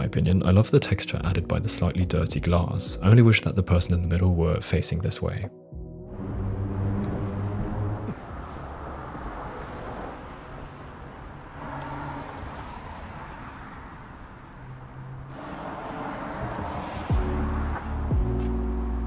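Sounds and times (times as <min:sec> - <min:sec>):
street ambience: 0:06.1 - 0:19.0
cars passing on wet street: 0:06.2 - 0:18.6.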